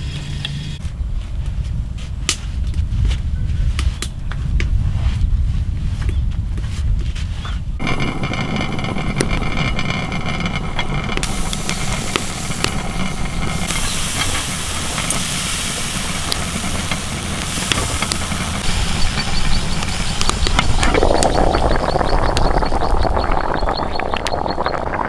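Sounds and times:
steady low rumble: 0:00.0 - 0:25.0
fire crackling: 0:07.8 - 0:25.0
steam hissing from pot lid: 0:11.2 - 0:24.2.

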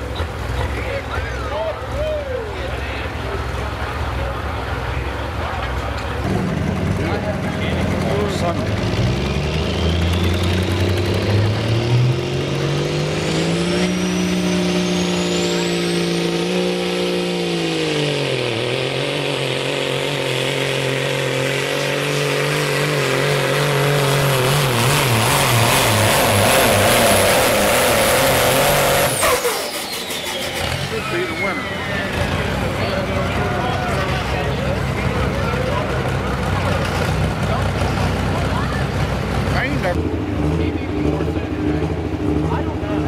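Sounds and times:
diesel engine at full throttle: 0:00.0 - 0:43.0
turbo whistle: 0:29.0 - 0:32.2.

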